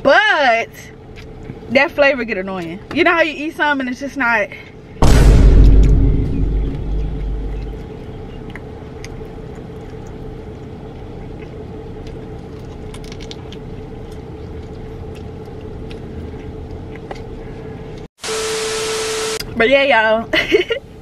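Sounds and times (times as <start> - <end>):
steady hum: 0.0 - 21.0
chewing and biting food: 0.9 - 1.7, 6.8 - 18.1.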